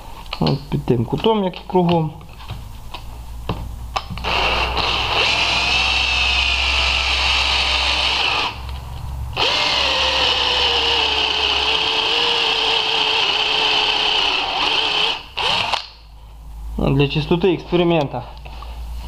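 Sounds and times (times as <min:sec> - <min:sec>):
cordless drill boring into metal: 0:04.2 - 0:08.6, 0:09.4 - 0:15.9.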